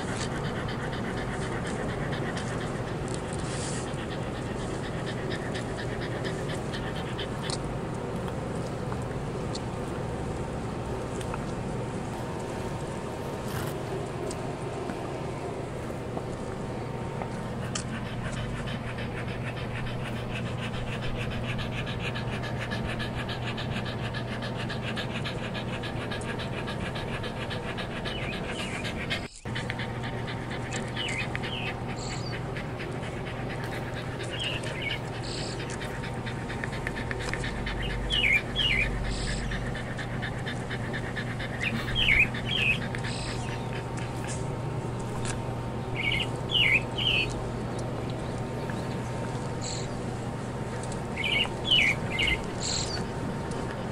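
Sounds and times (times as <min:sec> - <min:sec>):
dog panting: 0:00.0 - 0:53.9
small bird chirping: 0:45.8 - 0:47.4, 0:51.1 - 0:53.1.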